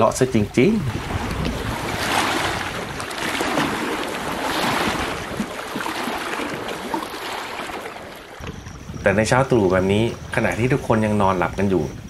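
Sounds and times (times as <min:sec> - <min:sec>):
waves splashing against rocky shore: 0:00.0 - 0:08.9.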